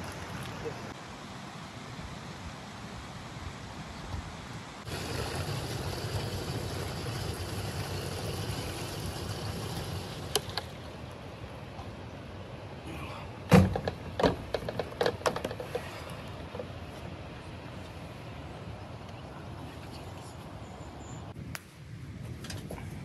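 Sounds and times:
fuel pouring into canister: 4.9 - 11.0
plastic knocks and clatters: 13.5 - 15.9.

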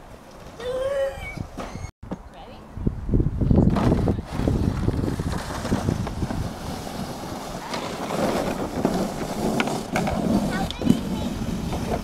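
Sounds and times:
wind buffeting microphone: 2.6 - 12.0
plastic sled sliding over snow: 3.6 - 12.0.

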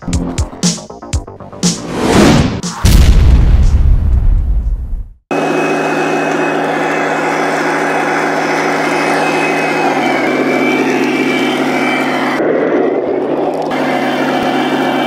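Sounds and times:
model tank engine drone: 5.4 - 15.0.

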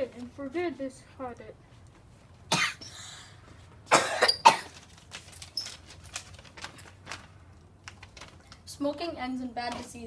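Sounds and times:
person coughing: 2.5 - 2.9, 3.9 - 4.8
faint clicks and rustles: 4.6 - 10.0.

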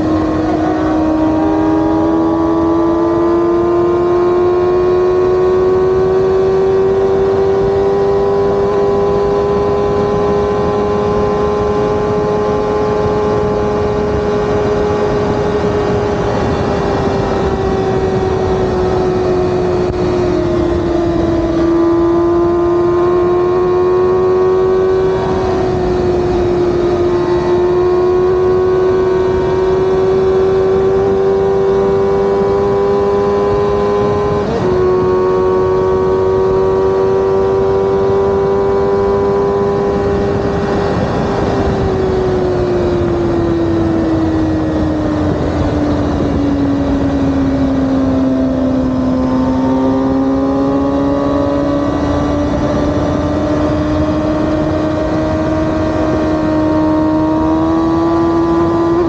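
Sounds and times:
wind rushing: 0.0 - 4.3
motorcycle engine cruising: 0.0 - 59.0.

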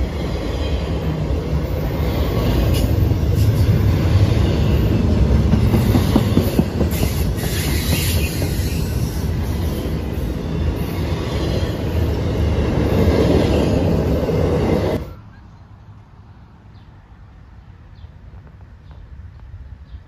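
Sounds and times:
train wheels rumbling on rails: 0.0 - 15.1.

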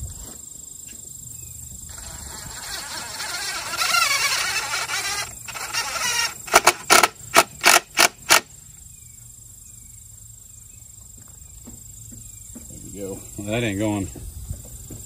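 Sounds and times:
impact driver sinking screw into wood: 3.6 - 8.5.

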